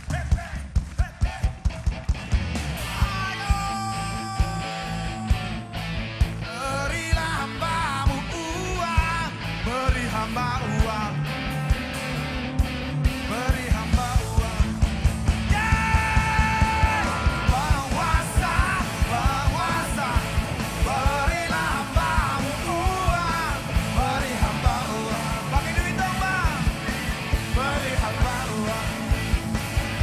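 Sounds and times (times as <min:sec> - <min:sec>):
drum beat: 0:00.0 - 0:04.6, 0:13.6 - 0:30.0
electric guitar: 0:01.2 - 0:30.0
men singing: 0:13.2 - 0:29.4.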